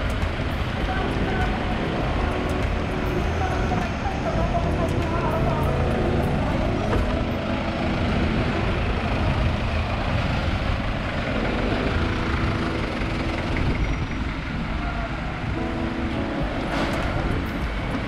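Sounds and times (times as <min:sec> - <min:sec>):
traffic engines rumbling: 0:00.0 - 0:18.0.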